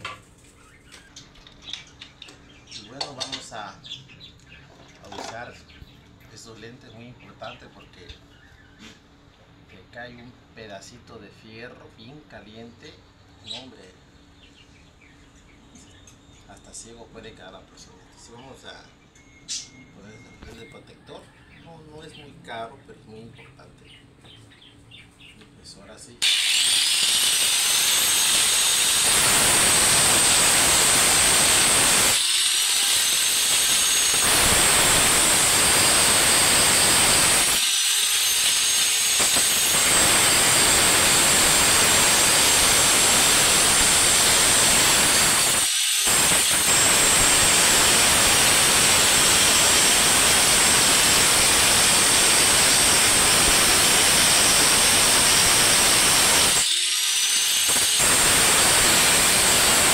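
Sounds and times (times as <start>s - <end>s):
power tool grinding and whining: 26.2s - 59.9s.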